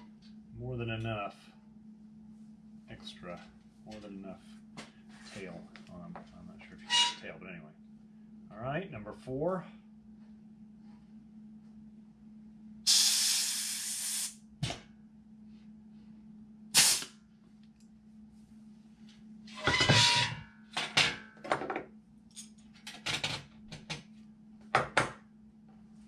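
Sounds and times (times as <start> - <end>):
pneumatic rivet squeezer hissing: 12.9 - 14.4, 16.8 - 17.1.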